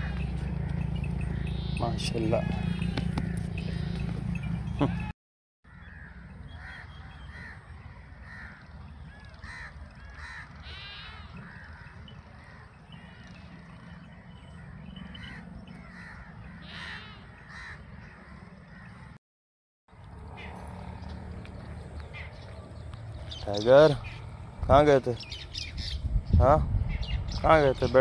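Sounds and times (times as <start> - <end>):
crows cawing: 0.0 - 4.2, 5.7 - 19.2.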